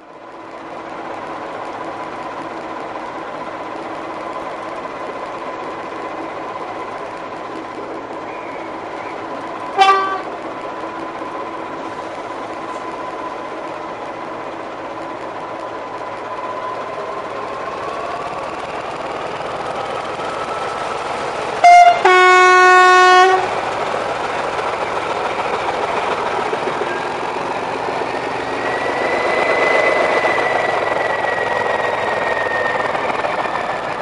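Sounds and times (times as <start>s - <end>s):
locomotive engine running: 0.0s - 34.0s
short train horn toot: 9.8s - 10.3s, 21.6s - 23.5s.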